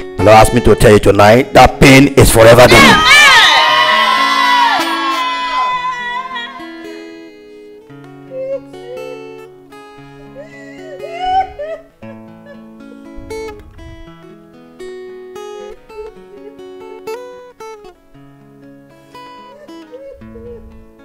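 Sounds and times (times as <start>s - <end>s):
congregation shouting and cheering: 2.6s - 7.0s.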